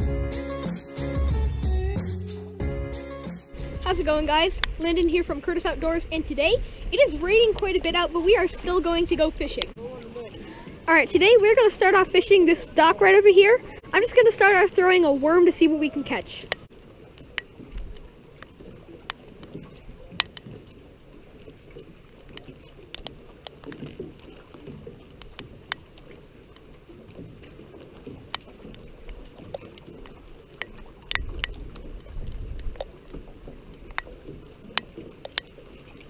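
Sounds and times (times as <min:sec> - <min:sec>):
water lapping against dock: 0:00.0 - 0:36.0
sharp ticks: 0:30.6 - 0:31.6.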